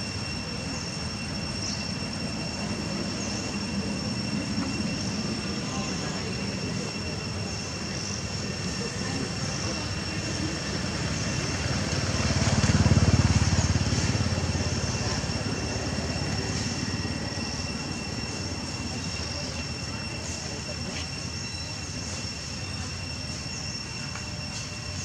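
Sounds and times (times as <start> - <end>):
high-pitched whine: 0.0 - 25.0
passing vehicle rumble: 9.3 - 20.0.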